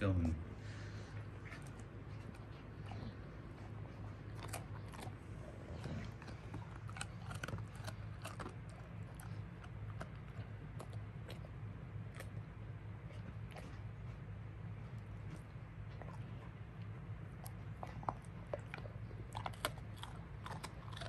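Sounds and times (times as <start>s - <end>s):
steady low hum: 0.0s - 21.0s
dog chewing a biscuit: 0.6s - 21.0s.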